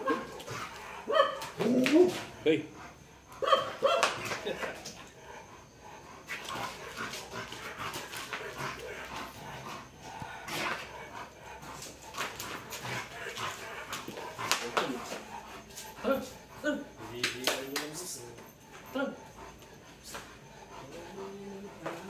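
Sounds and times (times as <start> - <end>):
sharp clicks and scuffs: 11.8 - 15.9, 20.0 - 20.3.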